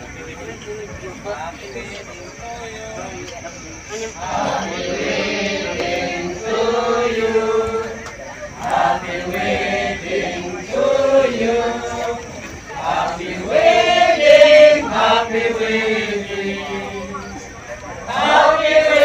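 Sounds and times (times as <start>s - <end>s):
group chanting in unison: 4.0s - 19.0s.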